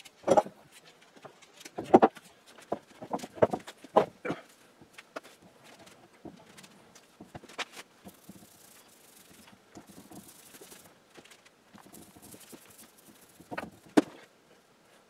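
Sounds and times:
foam roller rustling: 0:05.1 - 0:15.0.

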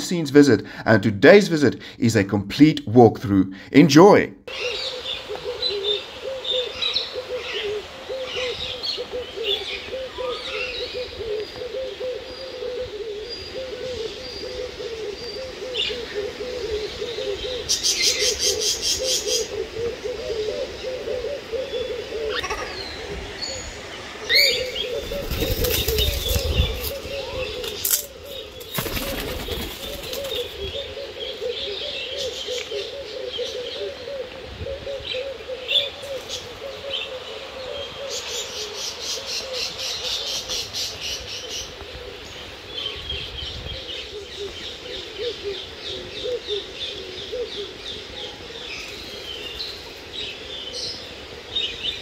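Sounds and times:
low wavering cooing: 0:04.5 - 0:51.1
wings flapping: 0:24.9 - 0:30.7.

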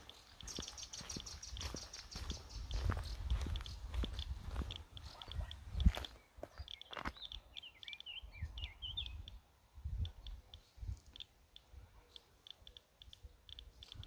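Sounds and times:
high ticks: 0:00.0 - 0:01.8, 0:02.6 - 0:08.2, 0:09.1 - 0:14.0
faint footsteps on pavement: 0:00.0 - 0:08.0
small bird twittering: 0:00.0 - 0:14.0.

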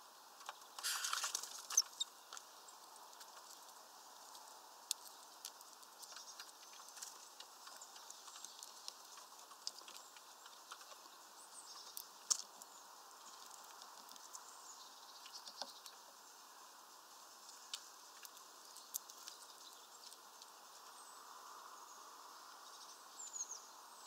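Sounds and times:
faint steady hiss: 0:00.0 - 0:24.0
bird pecking at wire-mesh feeder: 0:04.3 - 0:14.4.

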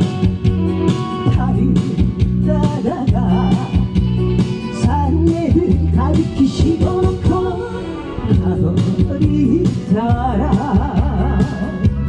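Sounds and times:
backing music with steady beat: 0:00.0 - 0:12.0
woman singing into a microphone: 0:06.4 - 0:11.6.

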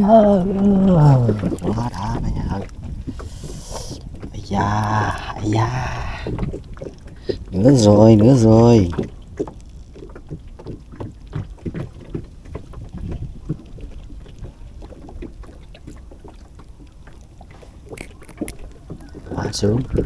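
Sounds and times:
low steady rumble: 0:00.0 - 0:20.0
small clicks and rustles of hands: 0:16.0 - 0:19.0.

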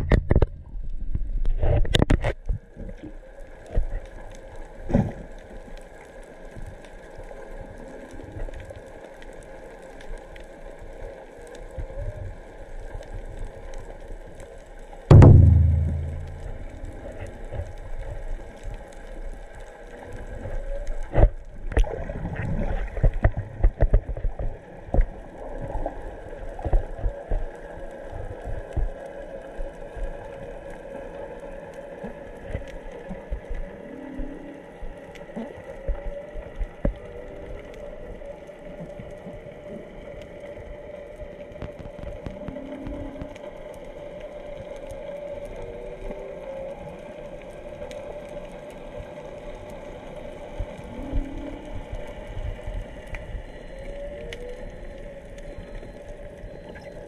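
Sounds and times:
whale song moans underwater: 0:25.1 - 0:57.0
low whale calls: 0:41.3 - 0:57.0.

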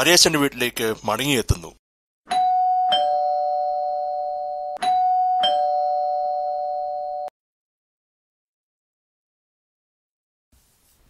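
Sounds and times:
two-tone doorbell chime: 0:02.3 - 0:07.3.

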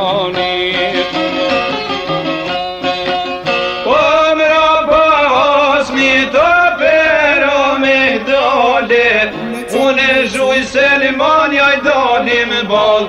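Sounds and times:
man singing folk song: 0:09.5 - 0:10.9.

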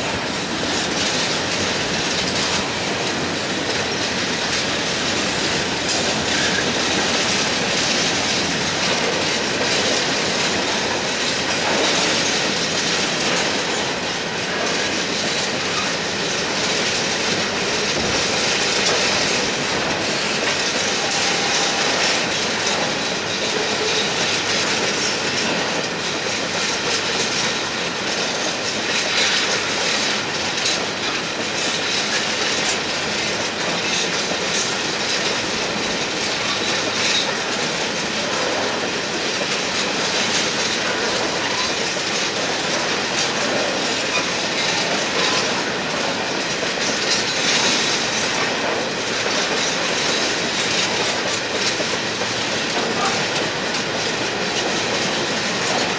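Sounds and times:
wheel-on-rail rumble: 0:00.0 - 0:55.9
wheels clicking over rail joints: 0:00.1 - 0:55.9
high wheel squeal: 0:06.2 - 0:07.1, 0:20.0 - 0:22.8.

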